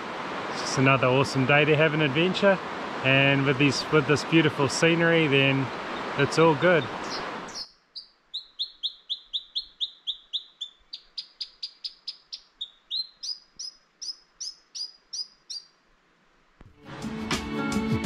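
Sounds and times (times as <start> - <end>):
robin singing: 4.6 - 15.8.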